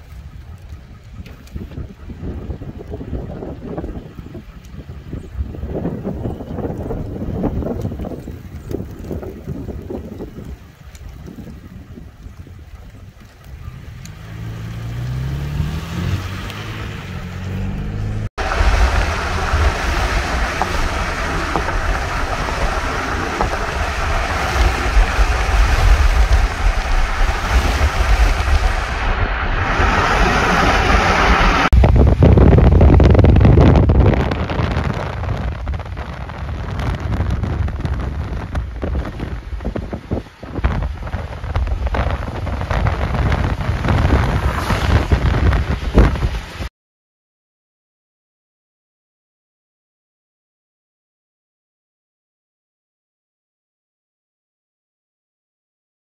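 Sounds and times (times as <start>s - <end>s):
road noise: 0.0s - 46.7s
wind buffeting microphone: 0.0s - 46.7s
car engine accelerating: 13.7s - 31.7s.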